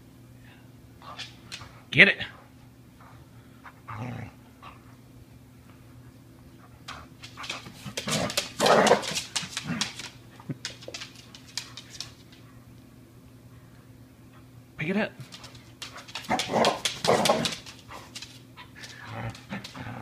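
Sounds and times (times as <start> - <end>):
dog growling: 3.9 - 4.4, 7.8 - 10.0, 16.3 - 17.6, 18.9 - 20.0.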